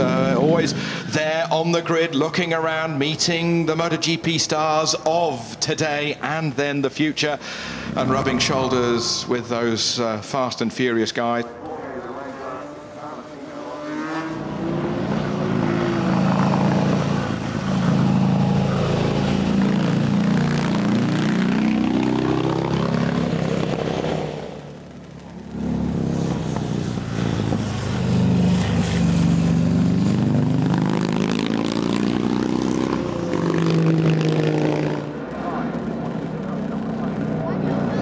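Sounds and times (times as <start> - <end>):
motorcycle engine accelerating: 7.7 - 9.6, 11.4 - 38.0.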